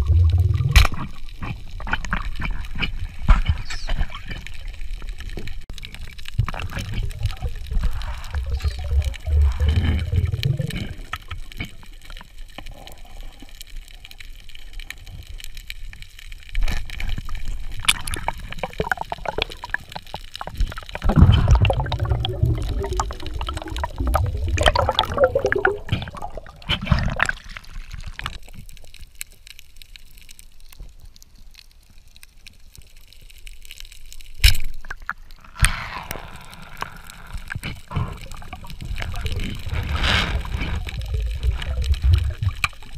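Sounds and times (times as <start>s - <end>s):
water bubbling underwater: 0.0s - 2.4s, 4.5s - 12.5s, 17.2s - 29.0s, 36.2s - 42.9s.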